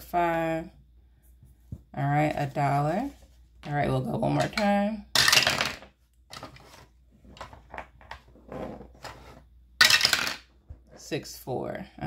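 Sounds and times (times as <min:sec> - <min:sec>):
dice clattering on hard surface: 0:05.2 - 0:06.5, 0:09.8 - 0:10.5.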